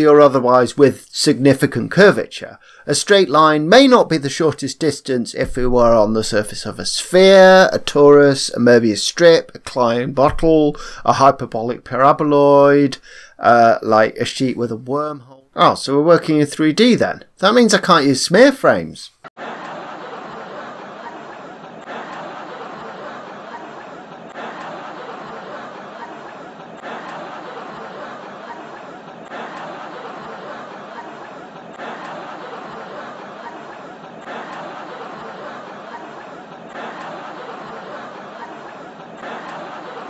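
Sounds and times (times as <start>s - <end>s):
canned crowd laughter: 19.4s - 40.0s.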